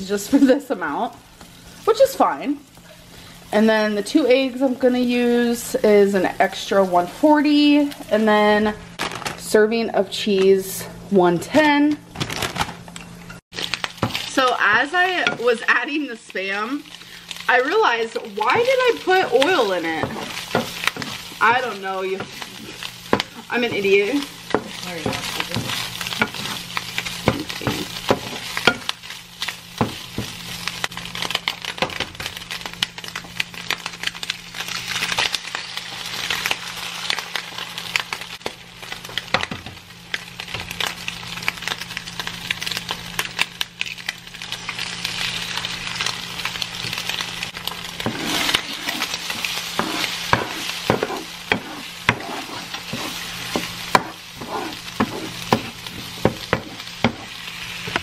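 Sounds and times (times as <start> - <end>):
food frying in oil: 0.0 - 9.6, 11.4 - 58.0.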